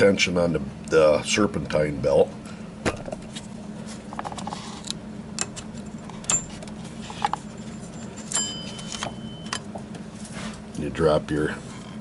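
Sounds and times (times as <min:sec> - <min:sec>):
ringing metal clink: 0:08.2 - 0:09.6.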